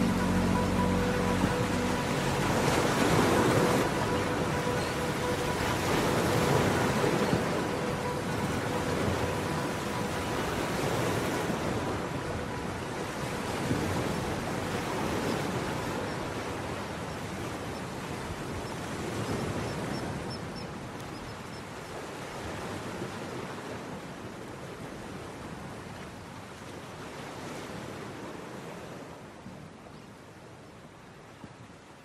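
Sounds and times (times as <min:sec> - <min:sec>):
faint held tone: 0:00.0 - 0:16.4
surf-like wash of noise: 0:00.0 - 0:29.8.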